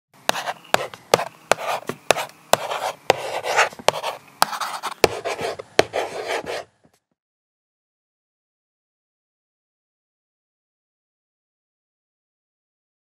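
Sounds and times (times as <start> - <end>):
marker tapping and scratching: 0.3 - 7.0.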